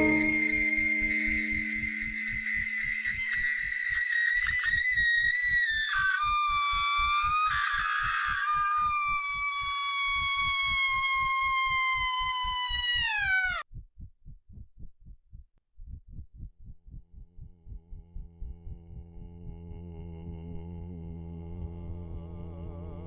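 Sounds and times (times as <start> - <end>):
woman screaming: 6.6 - 13.6
fast throbbing heartbeat pulse: 13.7 - 19.7.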